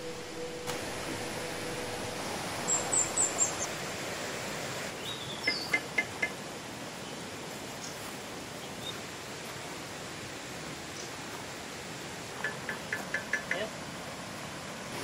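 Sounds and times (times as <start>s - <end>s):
steady outdoor hiss: 0.0s - 15.0s
small birds chirping: 2.5s - 3.8s, 4.9s - 6.3s, 7.0s - 9.1s.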